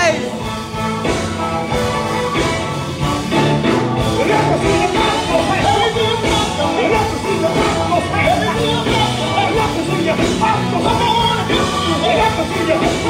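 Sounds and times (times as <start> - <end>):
gospel band playing: 0.0 - 13.0
people singing: 4.0 - 13.0.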